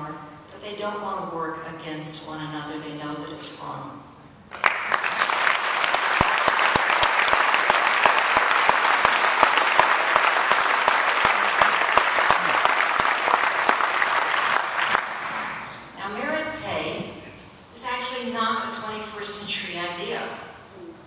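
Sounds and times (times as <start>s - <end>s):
people talking: 0.0s - 4.0s, 16.0s - 17.2s, 17.8s - 21.0s
audience applauding: 4.5s - 15.8s.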